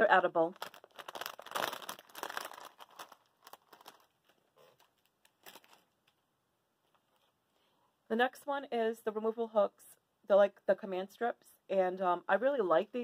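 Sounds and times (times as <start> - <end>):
chip bag crinkling: 0.4 - 6.1.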